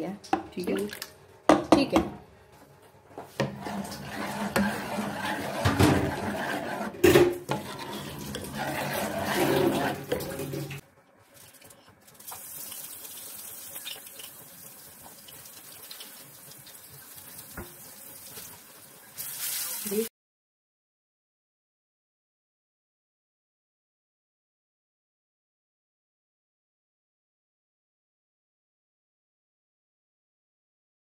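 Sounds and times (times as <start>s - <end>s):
spoon stirring thick liquid: 3.4s - 10.8s
garlic sizzling in oil: 11.4s - 20.1s.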